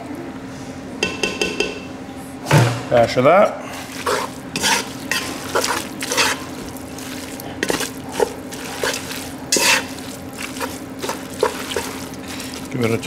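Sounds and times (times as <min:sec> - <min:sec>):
utensil stirring pasta in pan: 0:03.6 - 0:13.0.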